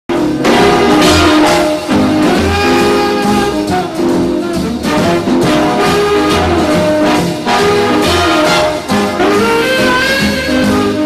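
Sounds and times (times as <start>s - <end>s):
instrumental theme music with beat: 0.1s - 11.0s.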